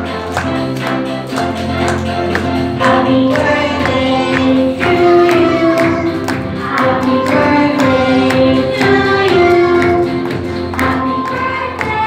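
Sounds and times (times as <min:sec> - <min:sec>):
musical accompaniment with steady beat: 0:00.0 - 0:12.0
children singing together: 0:02.8 - 0:12.0.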